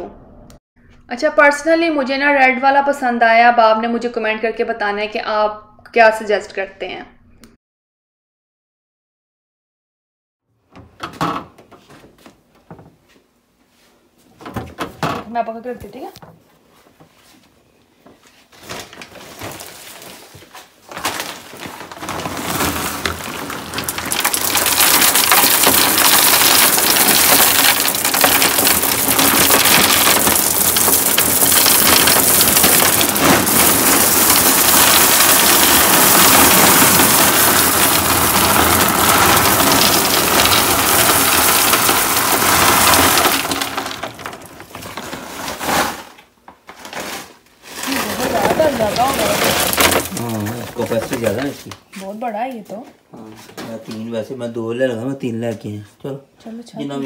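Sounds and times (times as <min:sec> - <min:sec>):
salt pellets pouring into tank: 0:21.6 - 0:46.1, 0:47.6 - 0:51.6.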